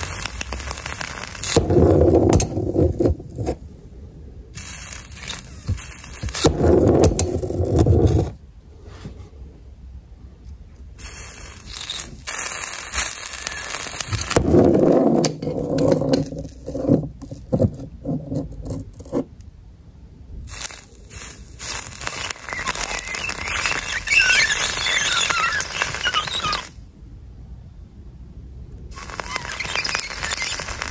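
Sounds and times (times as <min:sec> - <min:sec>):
meat sizzling and crackling: 0:00.0 - 0:01.8, 0:04.6 - 0:07.4, 0:11.0 - 0:14.4, 0:20.5 - 0:26.8, 0:29.0 - 0:30.9.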